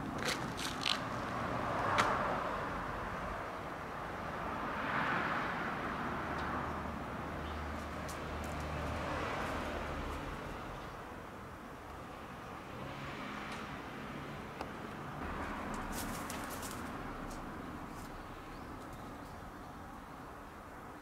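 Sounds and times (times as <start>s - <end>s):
vehicle passing: 4.3s - 11.4s, 12.5s - 18.6s
sandal steps on asphalt: 15.6s - 17.5s.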